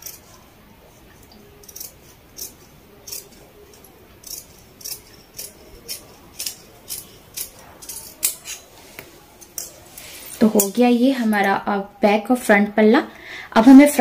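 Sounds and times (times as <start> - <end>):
scissors snipping fabric: 1.6 - 8.6.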